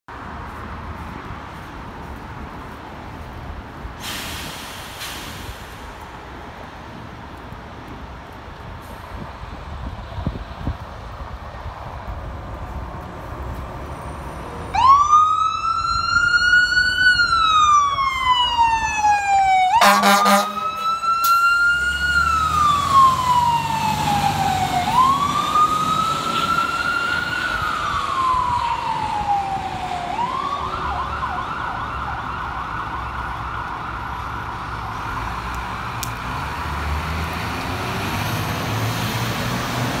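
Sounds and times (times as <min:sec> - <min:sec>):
fire engine siren wailing: 0:14.6 - 0:40.0.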